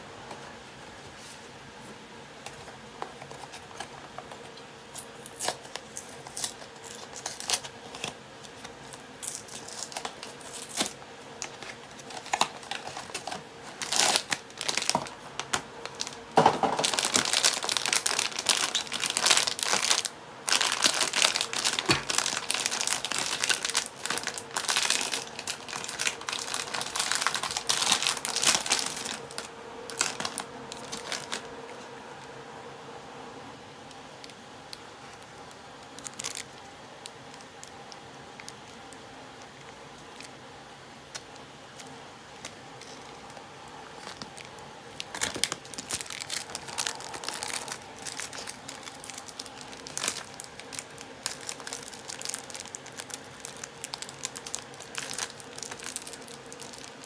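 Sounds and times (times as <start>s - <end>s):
foil bag crinkling and tearing: 4.9s - 31.5s, 35.9s - 36.6s, 44.0s - 57.0s.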